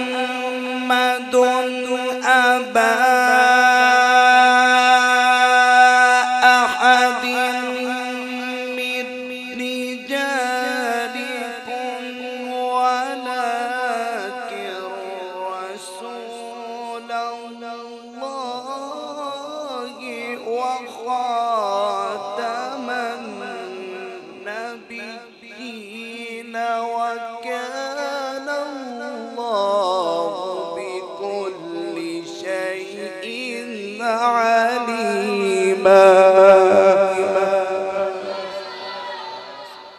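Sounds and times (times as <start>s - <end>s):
man reciting melodically: 0.0s - 39.8s.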